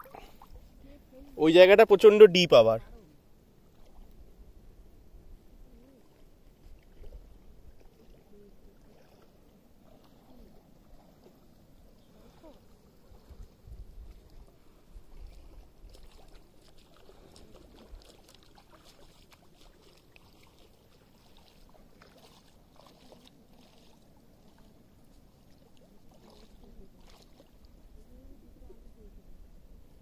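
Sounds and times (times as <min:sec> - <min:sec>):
shallow water sloshing: 0:00.0 - 0:01.4, 0:03.6 - 0:04.4, 0:05.8 - 0:28.0
small light splashes: 0:03.7 - 0:04.2, 0:05.8 - 0:27.8.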